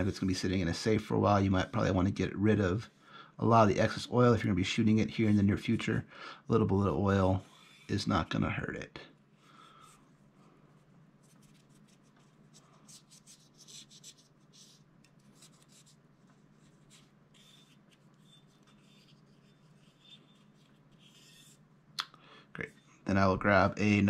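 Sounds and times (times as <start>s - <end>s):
cotton swab scrubbing metal: 11.1s - 21.7s.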